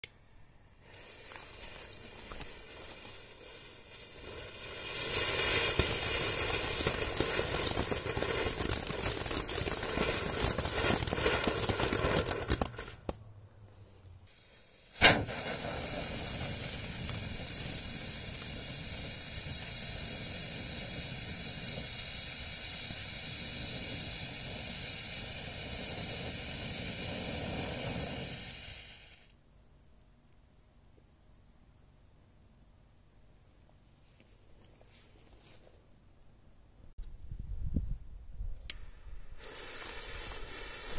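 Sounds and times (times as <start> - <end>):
firework fountains hissing: 0.8 - 13.2, 14.3 - 29.3, 39.2 - 40.9
sharp bang: 15.0 - 15.6.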